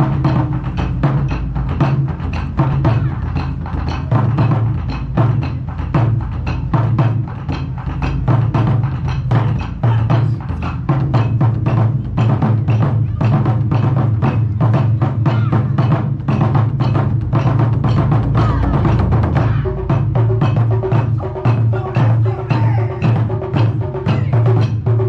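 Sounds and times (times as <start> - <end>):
taiko drum ensemble playing: 0.0 - 25.0.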